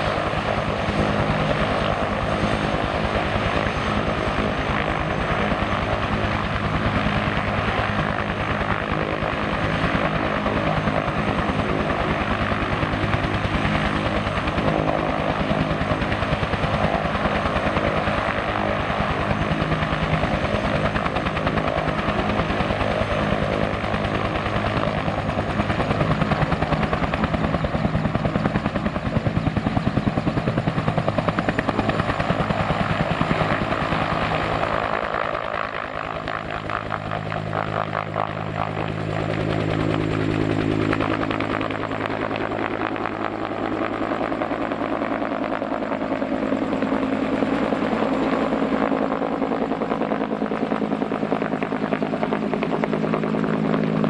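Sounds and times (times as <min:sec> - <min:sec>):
helicopter rotor beat: 0:00.0 - 0:54.0.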